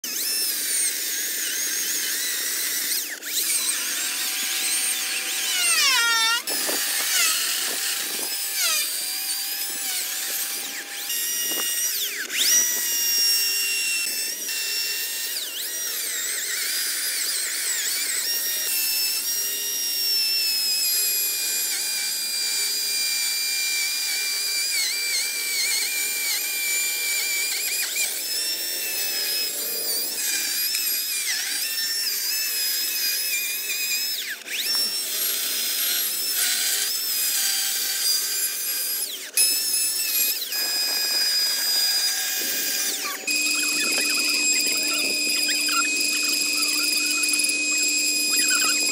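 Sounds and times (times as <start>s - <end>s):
electric chainsaw cutting a log: 0.0s - 48.9s.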